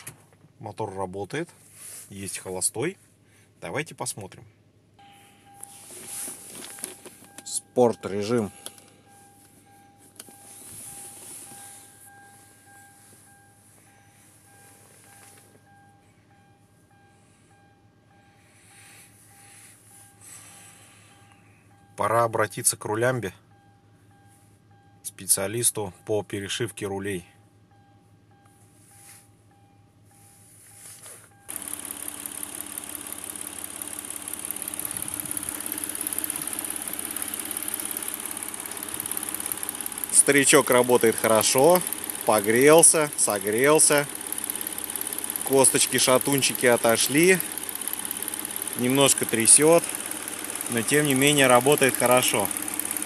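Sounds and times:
car engine idling: 4.8s - 53.0s
faint repeating tone: 7.3s - 32.1s.

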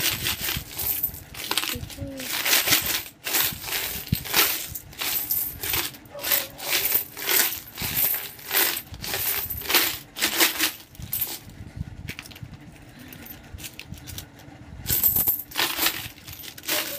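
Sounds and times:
coins clinking onto pile: 0.0s - 11.4s, 14.9s - 16.9s
coins rattling in piggy bank: 0.0s - 11.5s, 14.9s - 16.9s.

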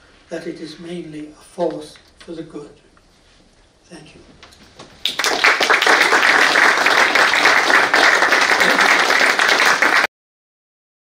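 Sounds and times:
audience applauding: 5.0s - 10.1s.

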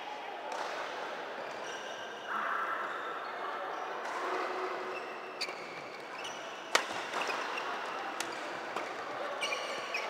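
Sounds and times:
shoes squeaking on court floor: 1.4s - 2.1s, 4.9s - 10.0s
racket hitting shuttlecock: 6.7s - 7.3s.

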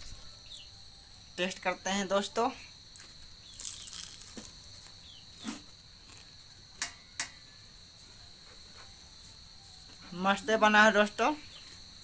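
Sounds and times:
short crunches: 3.0s - 6.3s
person chewing crisp pastry: 3.0s - 6.4s.

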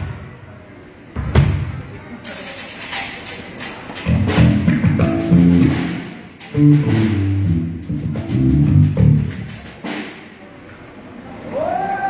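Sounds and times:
drum hits: 3.2s - 10.4s
guitar: 4.0s - 9.4s
bass notes: 4.0s - 9.7s.

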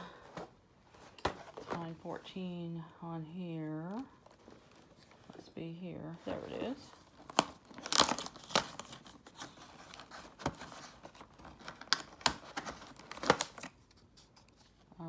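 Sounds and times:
plastic wrapper crackling: 6.7s - 14.0s
cardboard tearing: 7.2s - 14.0s.

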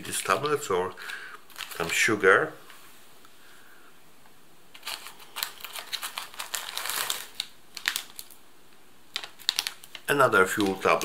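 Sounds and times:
foil pouches crinkling: 0.0s - 2.1s, 4.8s - 8.4s, 9.1s - 11.0s.

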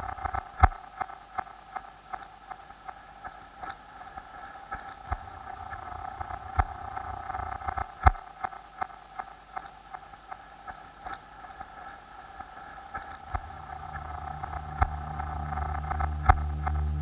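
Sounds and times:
faint irregular clicks: 0.0s - 17.0s
mid-pitched hum: 0.0s - 17.0s
deep low drone: 4.9s - 8.0s, 13.1s - 17.0s.

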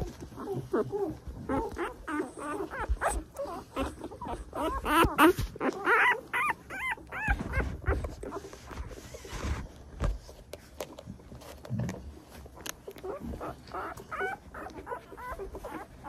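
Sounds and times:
puppies squealing and whimpering: 0.0s - 9.2s, 12.5s - 16.0s.

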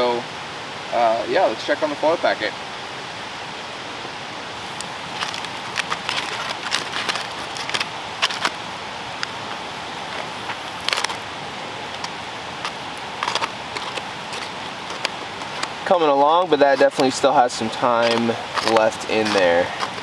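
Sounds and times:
steady hiss: 0.0s - 20.0s
aluminium foil crinkling: 4.6s - 20.0s
fire crackles and pops: 4.6s - 20.0s.

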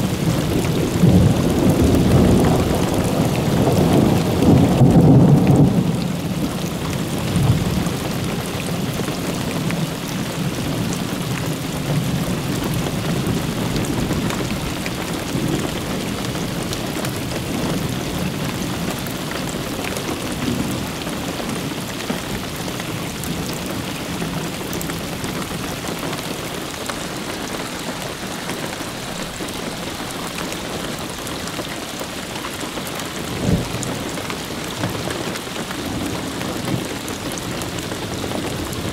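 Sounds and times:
thunder rumbling: 0.0s - 19.6s, 33.2s - 38.9s
steady rain: 0.0s - 38.9s.

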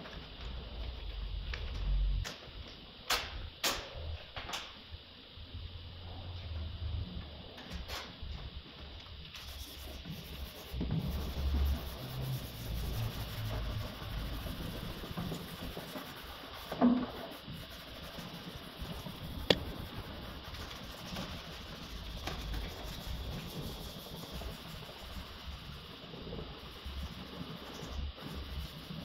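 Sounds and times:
cloth wiping car panels: 9.4s - 25.4s.

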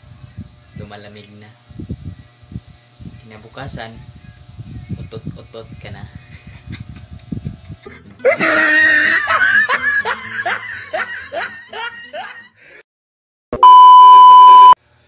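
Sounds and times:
man laughing loudly: 6.2s - 12.6s
steady single-pitch beep: 13.6s - 14.8s.

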